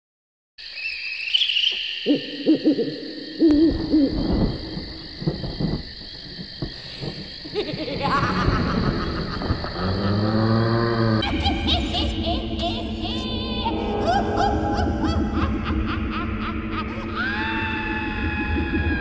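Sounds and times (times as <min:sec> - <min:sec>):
owl hooting: 0:01.3 - 0:04.3.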